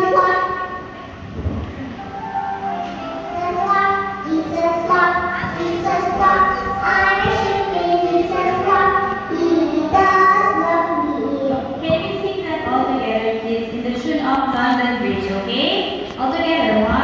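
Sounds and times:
backing music: 0.0 - 13.0
girl singing into microphone: 2.9 - 12.8.

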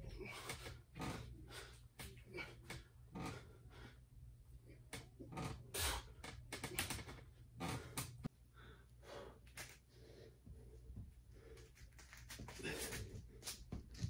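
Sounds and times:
man breathing hard: 0.0 - 4.1, 7.6 - 13.6.

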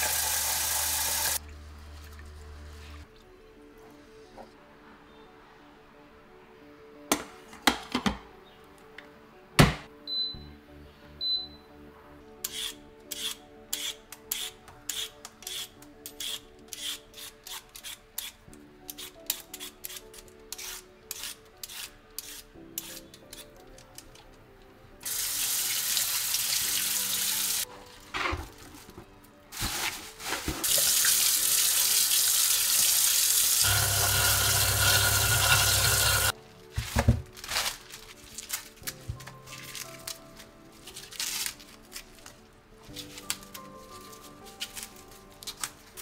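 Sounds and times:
kitchen tap running: 0.0 - 1.4, 25.1 - 27.6, 30.6 - 36.3
soft background music: 0.0 - 46.0
vegetable peeler scraping: 12.4 - 23.6, 33.6 - 36.3.

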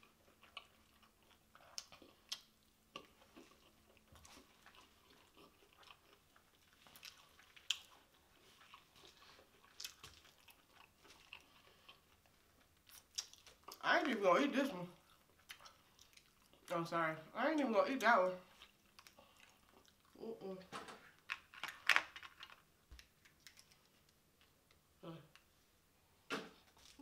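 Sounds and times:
person chewing: 0.0 - 13.8, 15.0 - 16.7, 18.5 - 20.2.

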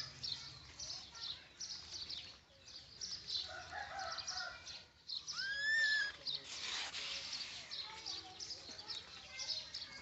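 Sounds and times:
rising animal call: 5.4 - 6.2.

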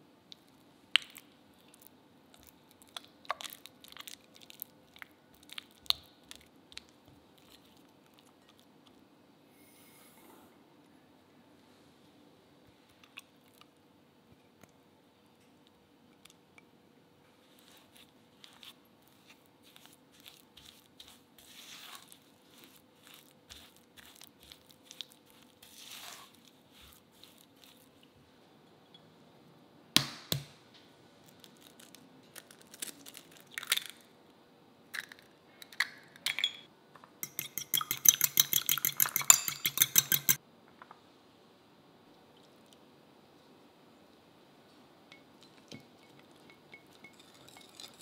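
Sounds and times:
spatula scraping glass bowl: 19.7 - 27.9, 37.2 - 40.4
egg beaten in glass bowl: 37.2 - 40.4
egg cracked against glass bowl: 37.2 - 40.4.

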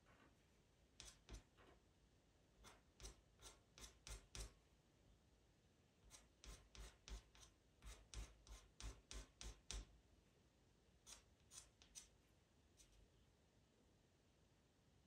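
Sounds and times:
pencil scratching on paper: 1.0 - 1.6, 2.6 - 4.6, 6.0 - 9.9, 11.0 - 12.1.

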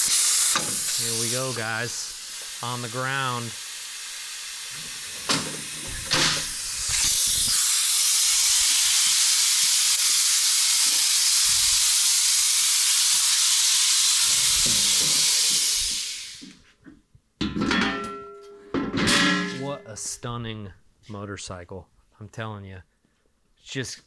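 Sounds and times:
loud hiss of escaping air: 0.0 - 16.6.

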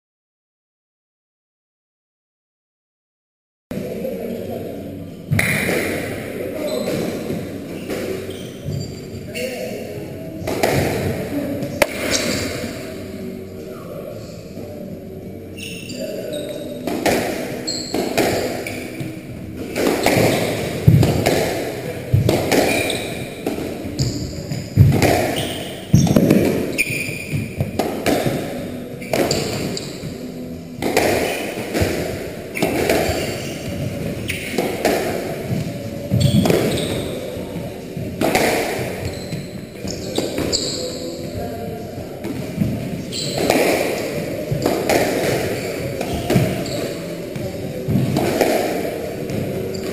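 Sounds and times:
shoes squeaking on wooden floor: 6.6 - 9.6, 17.6 - 21.4, 22.2 - 28.3, 32.5 - 37.6, 38.8 - 41.4, 42.5 - 48.3.

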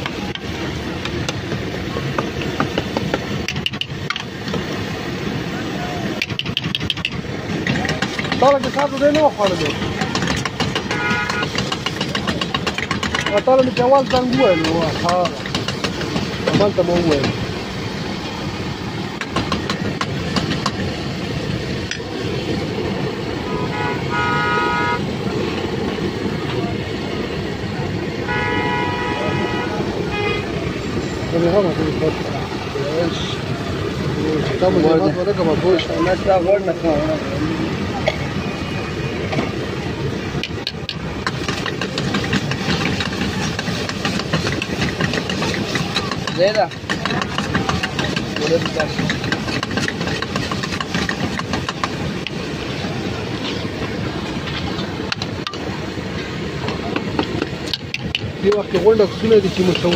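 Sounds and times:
traffic rumble: 0.0 - 59.9
vehicle horn: 10.9 - 11.6, 23.4 - 25.1, 28.2 - 30.6.

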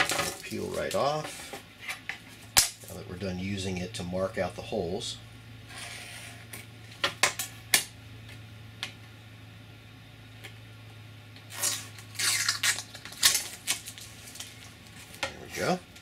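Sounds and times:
plastic film peeling off: 11.4 - 15.2.

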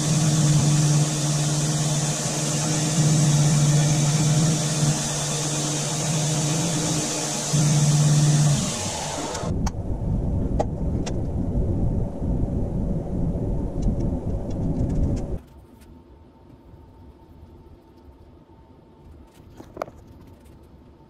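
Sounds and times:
belt grinder running: 0.0 - 9.5
low rumble: 7.6 - 15.4.

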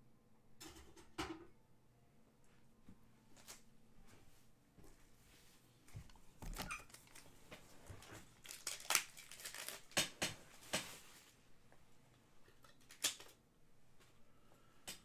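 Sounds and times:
plastic and cardboard crinkling: 6.4 - 11.4.

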